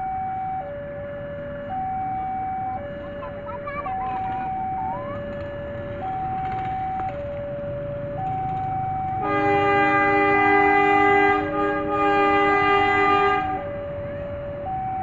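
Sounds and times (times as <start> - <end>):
two-tone level-crossing alarm: 0.0 - 15.0
locomotive air horn chord: 9.2 - 13.7.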